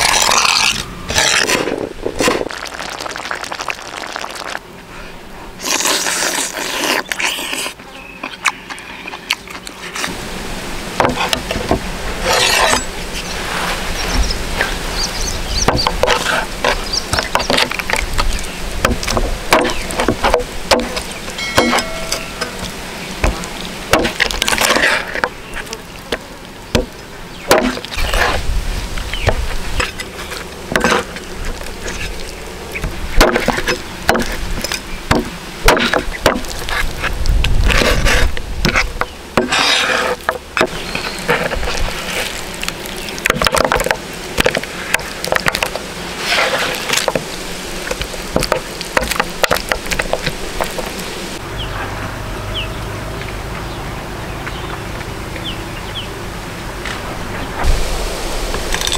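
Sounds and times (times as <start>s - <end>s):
cleaver chopping on wooden board: 18.8s - 21.0s, 23.2s - 24.8s, 27.5s - 27.9s, 33.2s - 34.4s, 35.1s - 36.5s.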